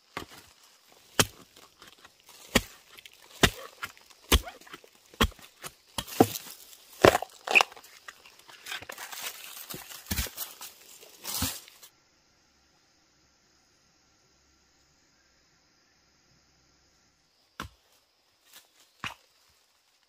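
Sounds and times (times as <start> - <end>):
wood cracking and tearing: 0.2 - 11.7
blade chopping into wood: 1.1 - 7.8, 9.7 - 10.4.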